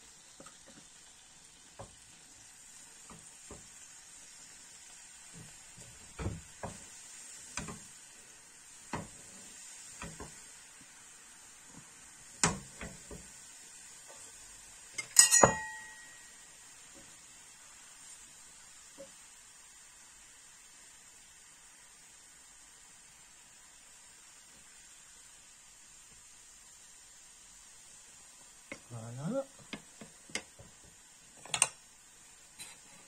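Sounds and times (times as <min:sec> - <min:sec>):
fish sizzling in frying pan: 0:00.0 - 0:33.0
utensil clinking against pan: 0:15.0 - 0:16.2.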